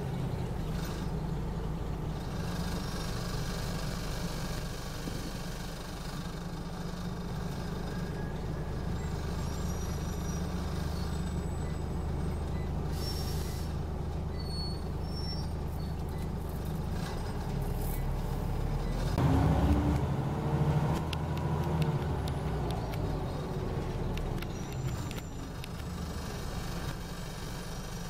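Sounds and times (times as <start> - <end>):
bus diesel engine idling: 0.0 - 28.0
pneumatic brake air hisses: 12.9 - 13.8.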